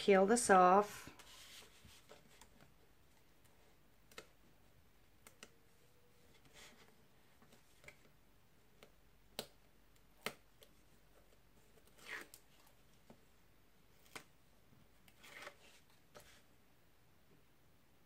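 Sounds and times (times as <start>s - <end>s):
tape liner rustling: 1.1s - 8.1s, 8.7s - 13.2s.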